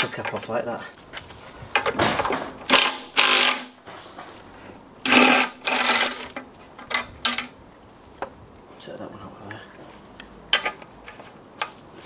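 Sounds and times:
impact driver buzzing and rattling: 2.0 - 3.9, 5.0 - 6.4.

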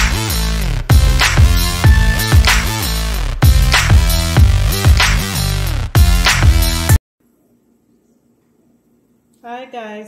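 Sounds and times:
music with heavy bass beat: 0.0 - 7.0.

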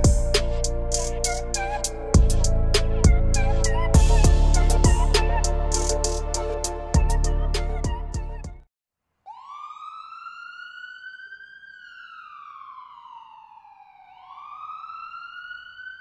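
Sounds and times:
siren-style wailing tone: 0.0 - 8.5, 9.3 - 16.0
background music: 0.0 - 8.6.

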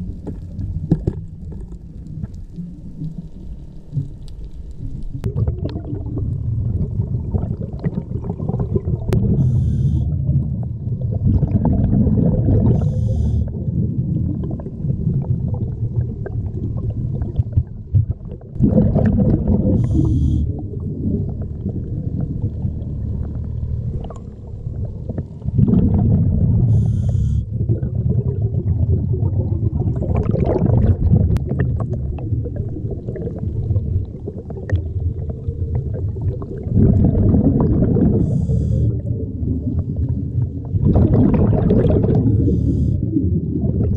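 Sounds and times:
underwater rumble of water: 0.0 - 43.9.

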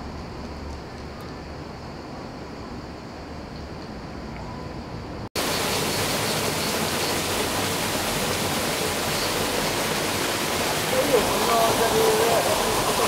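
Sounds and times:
water splashing into pool: 5.4 - 13.0.

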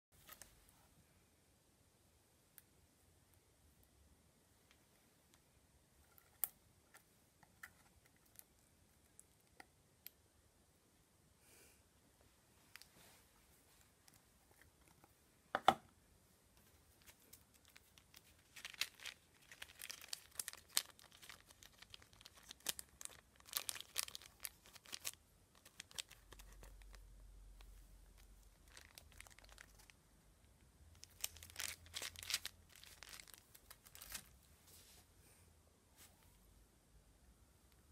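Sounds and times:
plastic sachets crinkling: 17.0 - 30.0, 30.9 - 34.4.

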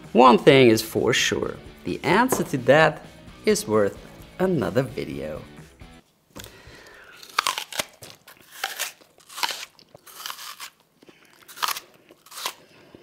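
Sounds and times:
crunching chews: 6.4 - 13.0
crunchy apple bite: 6.4 - 13.0.

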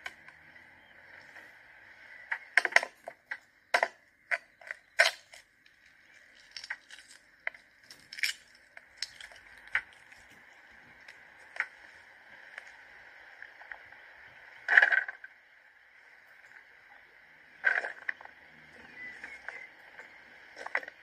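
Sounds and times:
eggshell crackling: 2.6 - 12.8.

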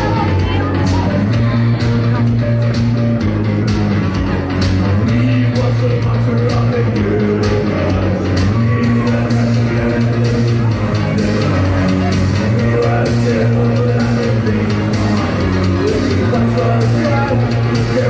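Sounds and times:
bass line of low notes: 0.0 - 18.0
electric guitars: 0.0 - 18.0.

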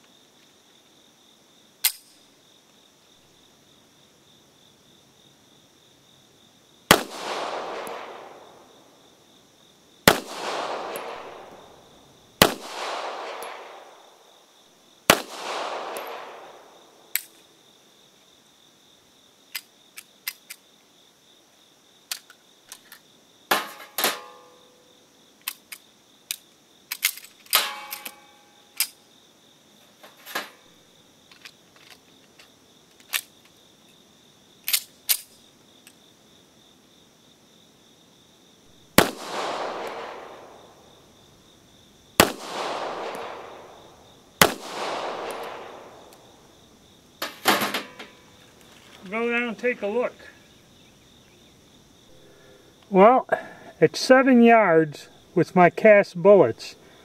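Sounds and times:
metallic clicks of pistol handling: 1.8 - 2.2, 17.1 - 17.4, 19.5 - 20.6, 22.1 - 23.0, 25.4 - 29.0, 34.7 - 36.0
pistol shots with echo: 6.9 - 8.9, 10.0 - 14.2, 15.1 - 17.1, 38.9 - 40.9, 42.2 - 46.4.

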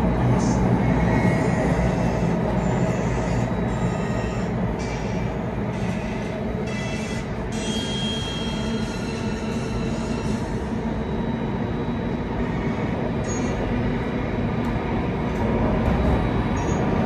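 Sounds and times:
train wheels rumbling on rail: 0.0 - 17.0
high-pitched wheel squeals: 0.4 - 11.3, 12.4 - 13.7, 16.6 - 17.0.

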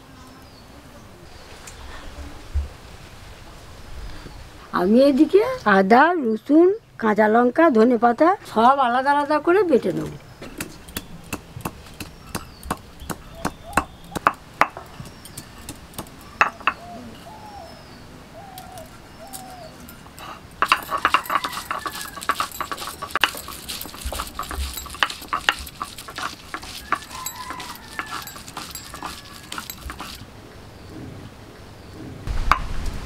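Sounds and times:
stone pestle pounding: 10.6 - 16.8, 20.6 - 30.2
animal calls: 16.2 - 30.2.

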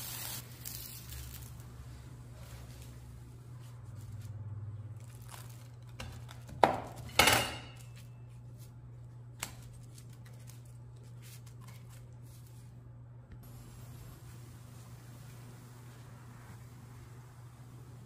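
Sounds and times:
parchment paper rustling: 0.0 - 6.5, 7.8 - 12.8
knife crunching through crisp food: 5.0 - 6.4.

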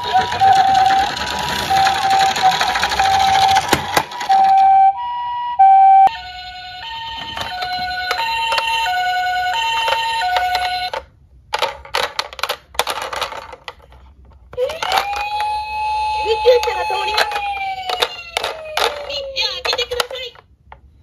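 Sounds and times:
plastic toy cars clattering: 0.0 - 4.8, 7.1 - 20.9
toy ambulance two-tone siren: 0.0 - 11.1, 14.6 - 20.1.

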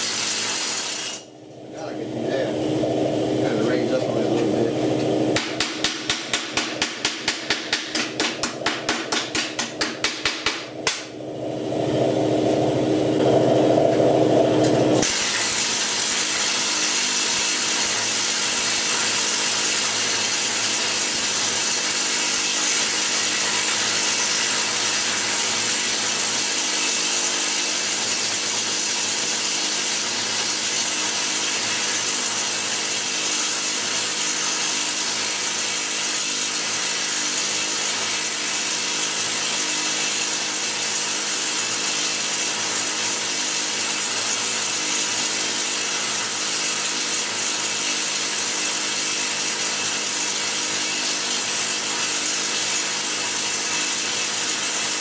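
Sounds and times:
pneumatic hammer sharp taps: 5.4 - 11.1.

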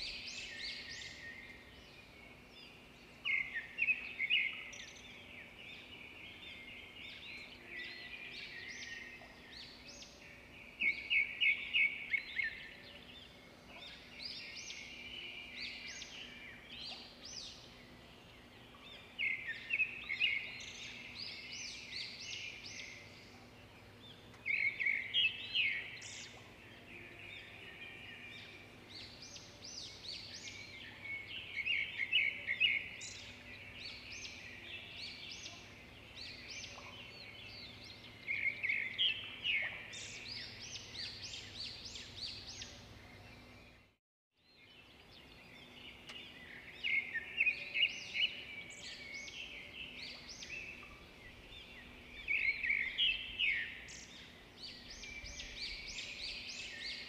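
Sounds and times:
faint birdsong: 0.0 - 57.0.

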